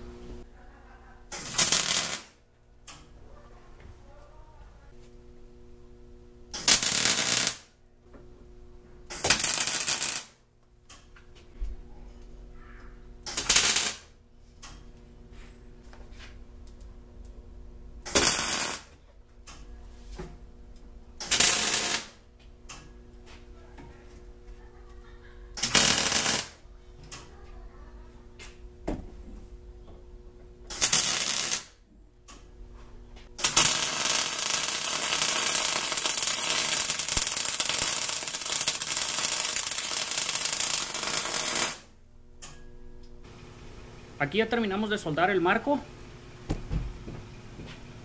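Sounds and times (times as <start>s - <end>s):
welder arcing on steel: 1.3s - 3.1s, 6.5s - 7.7s, 9.1s - 11.0s, 13.2s - 14.8s, 18.0s - 19.6s, 21.2s - 22.9s, 25.6s - 27.2s, 30.7s - 32.4s, 33.4s - 42.6s.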